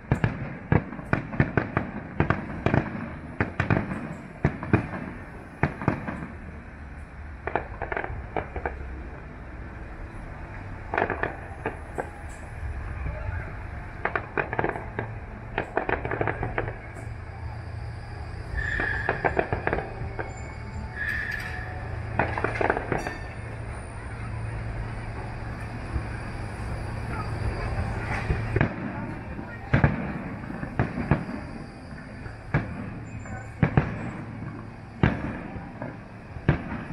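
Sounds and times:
distant fireworks bangs: 0.0s - 6.7s, 7.4s - 9.0s, 10.8s - 36.9s
low background rumble: 0.0s - 36.9s
tram humming: 0.0s - 36.9s
tram wheel squeal: 3.3s - 36.9s.

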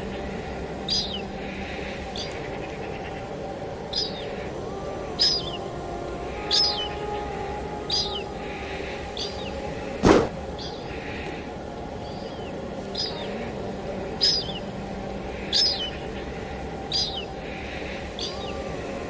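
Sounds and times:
bird chirping: 0.0s - 11.4s, 12.0s - 13.6s, 14.2s - 14.7s, 15.3s - 19.0s
faint held musical notes: 0.0s - 19.0s
steady rain hiss: 0.0s - 19.0s
loud sharp crack: 10.0s - 10.4s.

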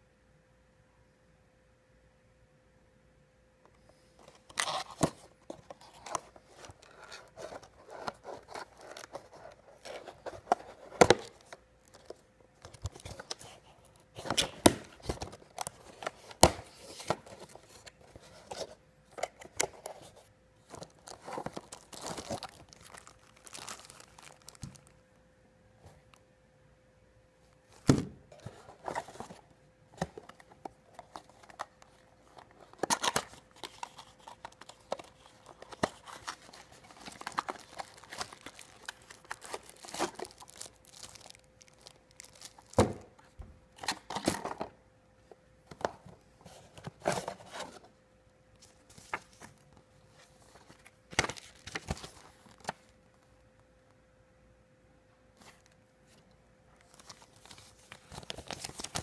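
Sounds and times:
paper leaflets rustling: 19.8s - 24.9s, 30.1s - 42.9s, 56.9s - 59.0s
plastic bag crinkling: 20.7s - 25.0s, 30.9s - 42.8s.

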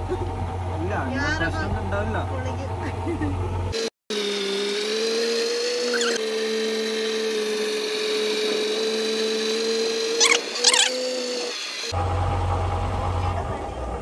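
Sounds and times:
motorboat motor whine: 0.0s - 14.0s
short high calls: 5.8s - 6.2s, 10.1s - 11.0s.

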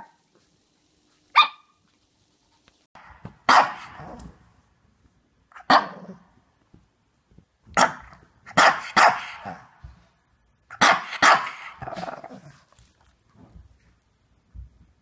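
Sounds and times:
dog barking: 1.4s - 1.8s, 3.5s - 4.2s, 5.6s - 6.2s, 7.8s - 9.7s, 10.8s - 11.8s.

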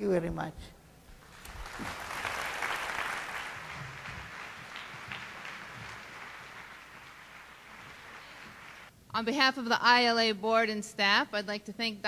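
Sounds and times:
audience applauding: 1.2s - 8.9s.

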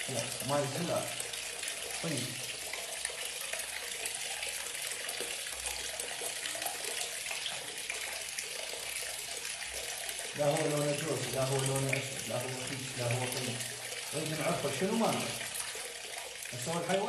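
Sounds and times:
tap water pouring into basin: 0.0s - 17.0s.

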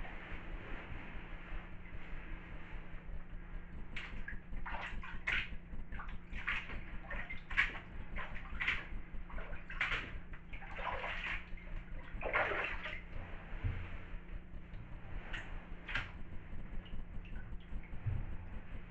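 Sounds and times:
water sloshing around boots: 4.0s - 18.9s
boot splashing out of water: 6.4s - 13.0s.

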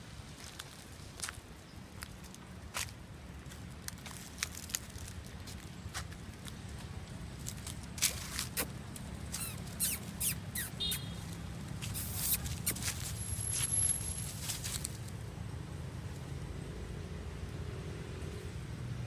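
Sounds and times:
footsteps crunching dry leaves: 0.3s - 9.9s, 10.9s - 15.2s
high squeaks: 8.4s - 14.4s.

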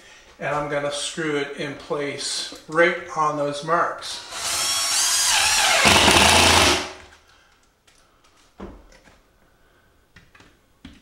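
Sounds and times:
impact driver whining and hammering: 4.3s - 7.1s.

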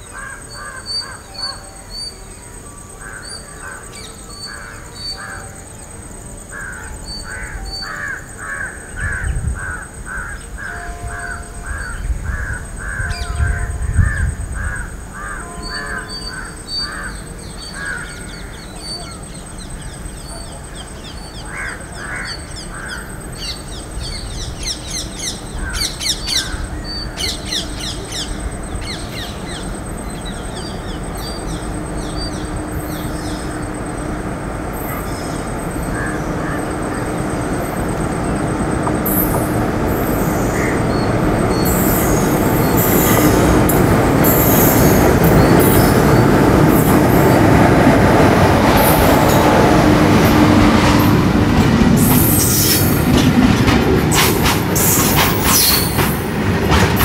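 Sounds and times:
approaching train rumble: 0.0s - 57.0s
crows cawing: 6.5s - 17.2s, 17.8s - 18.6s, 21.5s - 23.1s, 36.0s - 37.1s, 40.5s - 40.8s.

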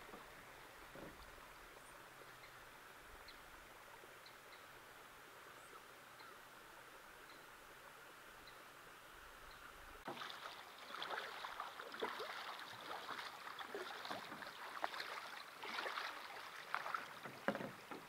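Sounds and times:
paddle splashing in water: 10.0s - 18.0s.

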